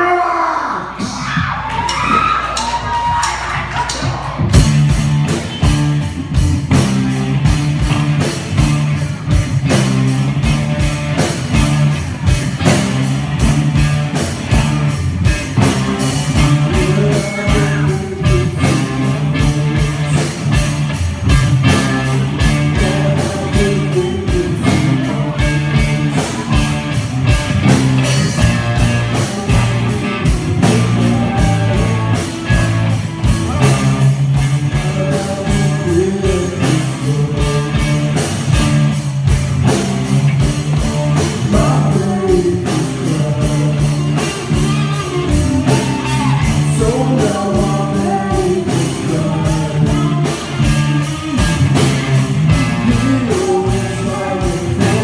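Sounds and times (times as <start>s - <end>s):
bass guitar: 0.0s - 55.0s
drum kit beat: 1.0s - 55.0s
electric guitar: 4.3s - 55.0s.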